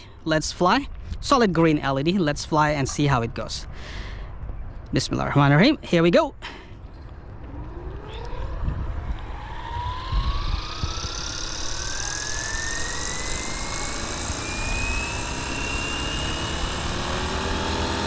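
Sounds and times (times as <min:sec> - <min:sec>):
low rumble: 0:06.8 - 0:16.9
electric motor whine rising: 0:07.1 - 0:18.0
rotor blades rushing: 0:07.1 - 0:18.0.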